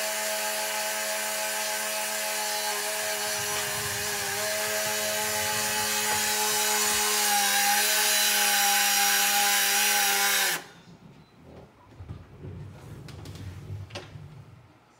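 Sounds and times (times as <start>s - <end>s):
electric motor whine: 0.0s - 10.7s
hiss: 2.4s - 7.2s.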